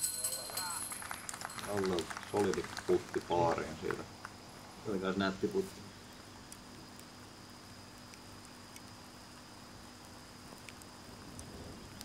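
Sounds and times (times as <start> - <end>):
thin high tone: 0.0 - 2.4
background hiss: 0.0 - 12.0
faint ticks: 6.2 - 12.0.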